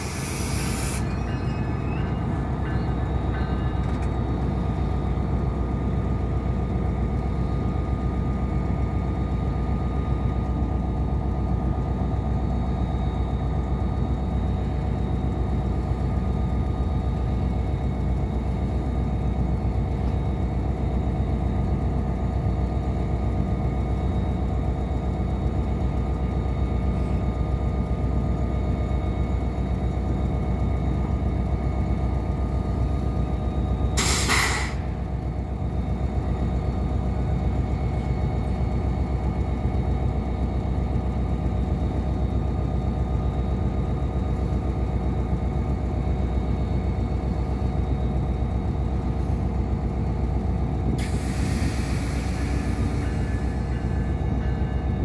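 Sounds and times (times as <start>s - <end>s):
air brake hiss: 0.0s - 1.4s, 34.0s - 34.9s, 51.0s - 54.0s
diesel locomotive idling: 0.0s - 55.0s.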